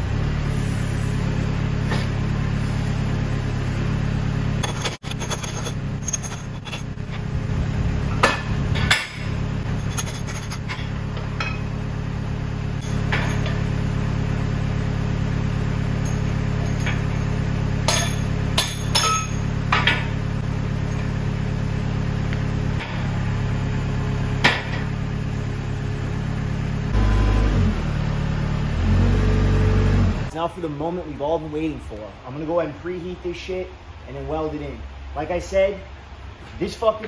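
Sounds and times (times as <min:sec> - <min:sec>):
engine idling: 0:00.0 - 0:30.9
hammer striking steel: 0:17.8 - 0:20.1.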